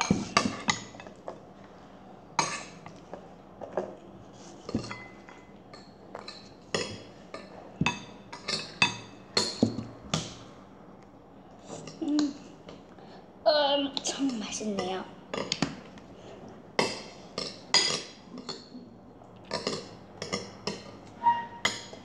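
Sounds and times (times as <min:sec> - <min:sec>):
dishes and cutlery clinking: 0:00.0 - 0:01.4, 0:04.6 - 0:09.9, 0:16.8 - 0:18.7.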